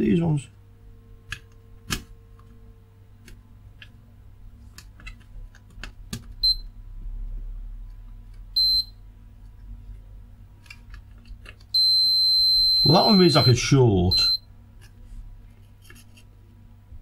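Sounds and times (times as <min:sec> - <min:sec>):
multimeter beeping: 0:06.4 - 0:06.7, 0:08.6 - 0:09.0, 0:11.8 - 0:14.5.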